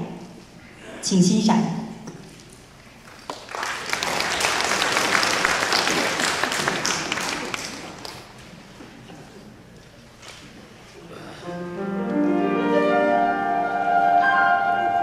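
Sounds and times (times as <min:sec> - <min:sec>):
audience applauding: 0:03.1 - 0:08.4.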